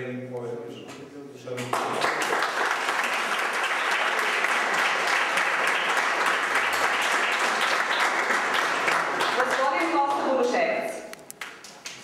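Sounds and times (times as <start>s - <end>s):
audience applauding: 1.5s - 10.3s, 11.4s - 12.0s.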